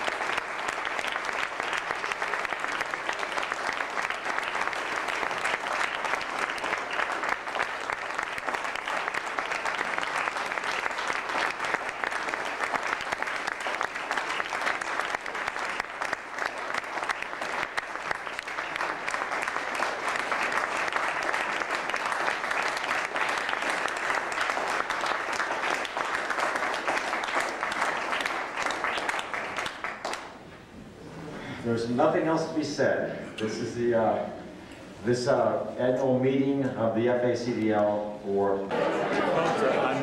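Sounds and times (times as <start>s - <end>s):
audience applauding: 0.0s - 30.4s, 38.7s - 40.0s.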